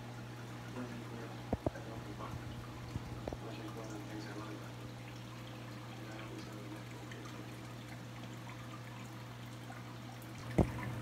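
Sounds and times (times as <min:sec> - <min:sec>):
water trickling and pouring: 0:00.1 - 0:11.0.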